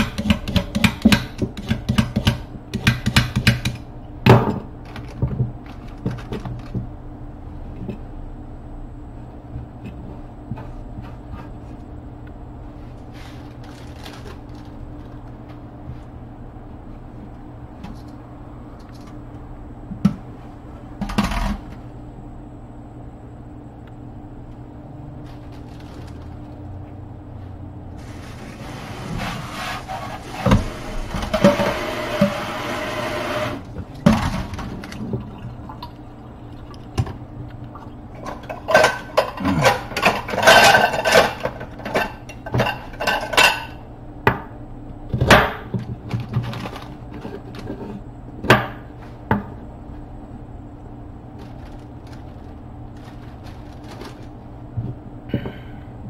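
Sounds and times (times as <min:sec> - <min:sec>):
tap water running: 0:28.0 - 0:33.7, 0:34.8 - 0:37.9.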